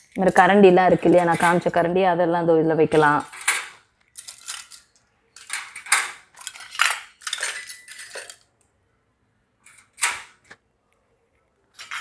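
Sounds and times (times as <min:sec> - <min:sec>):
metal ladles clinking in holder: 0:03.0 - 0:08.5.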